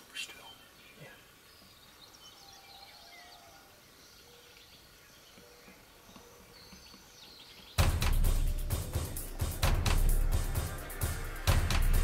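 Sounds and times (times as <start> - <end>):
faint bird calls: 0.0 - 7.8
loud music with heavy bass: 7.8 - 12.0.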